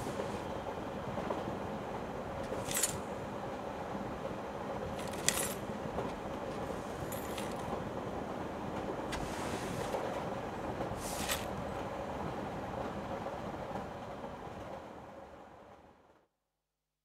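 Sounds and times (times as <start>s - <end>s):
broom sweeping floor: 9.1s - 10.0s, 10.9s - 11.6s.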